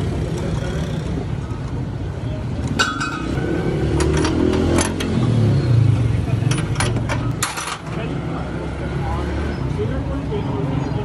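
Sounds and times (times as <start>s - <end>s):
wrench clinking on metal: 2.8s - 3.4s.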